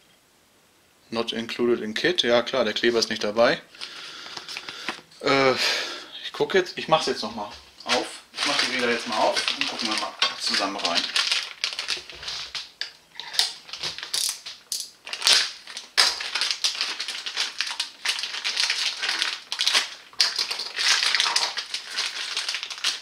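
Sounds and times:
packaging crinkling and rustling: 7.0s - 23.0s.

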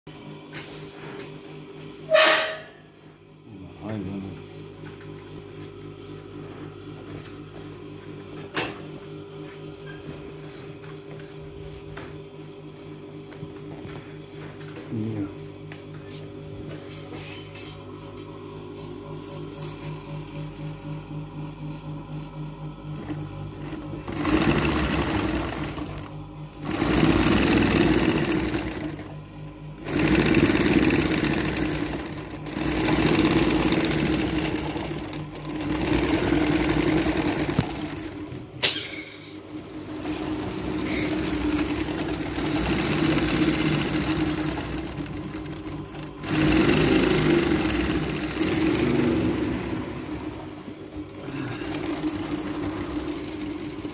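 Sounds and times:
industrial sewing machine stitching: 23.0s - 38.5s, 39.5s - 53.9s.

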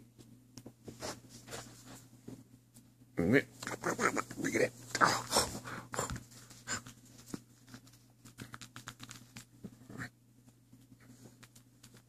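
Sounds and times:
puppy noises: 3.6s - 7.0s.

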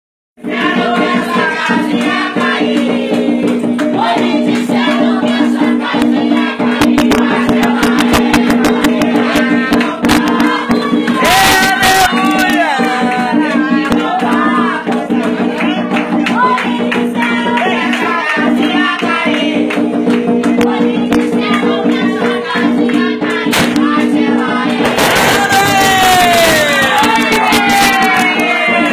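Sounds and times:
group chanting: 0.4s - 28.9s
percussion: 0.4s - 28.9s
loud rush of noise: 23.5s - 28.9s.

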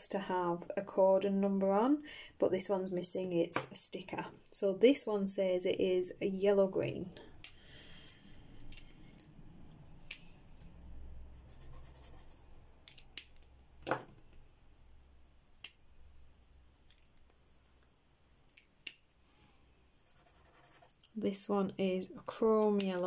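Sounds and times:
marker tip scratching paper: 11.4s - 12.4s, 20.0s - 21.0s
plastic marker caps clicking: 12.8s - 13.6s, 22.6s - 23.0s.

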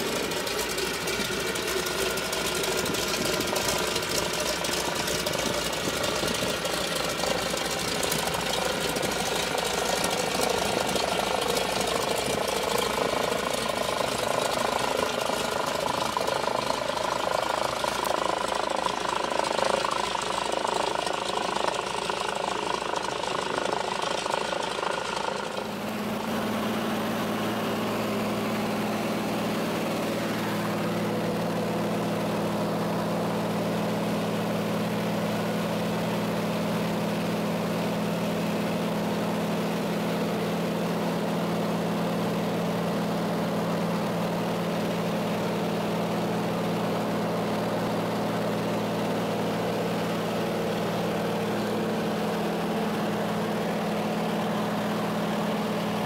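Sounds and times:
propeller plane engine drone: 0.0s - 56.0s.

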